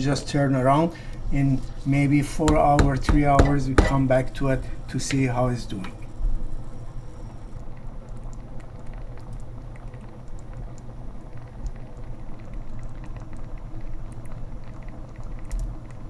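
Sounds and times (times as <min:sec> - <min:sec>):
steady low hiss: 0:00.0 - 0:16.0
stew bubbles popping: 0:07.6 - 0:16.0.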